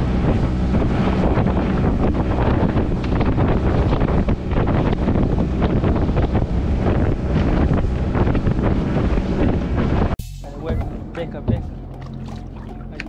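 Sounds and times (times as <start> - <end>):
outboard engine hum: 0.0 - 13.0
water splashing against hull: 0.0 - 13.0
wind buffeting microphone: 0.0 - 13.0.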